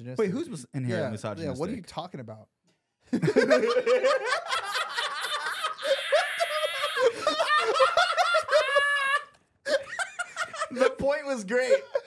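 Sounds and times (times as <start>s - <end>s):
group of people laughing: 3.1s - 12.0s
man laughing loudly: 3.2s - 11.0s.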